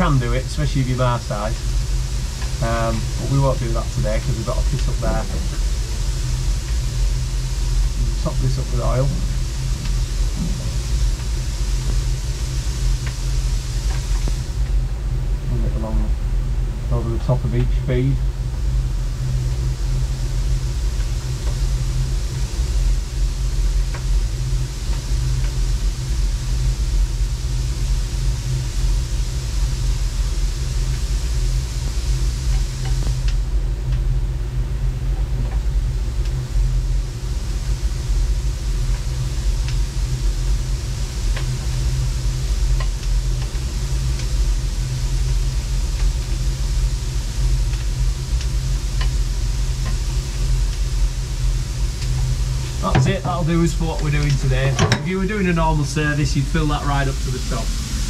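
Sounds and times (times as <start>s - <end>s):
low mechanical rumble: 0.0s - 58.0s.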